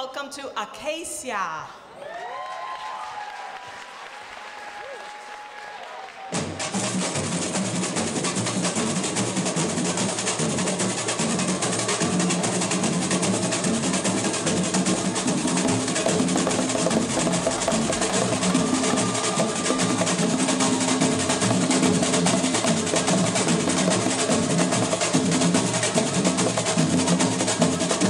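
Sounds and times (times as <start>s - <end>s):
samba drums fast rhythm: 6.7s - 28.0s.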